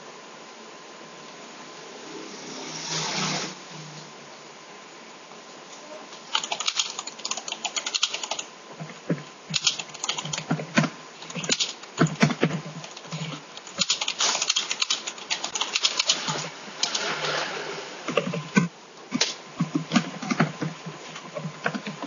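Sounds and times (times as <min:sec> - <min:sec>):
keyboard typing clicks: 0:06.3 - 0:08.5, 0:09.5 - 0:17.0.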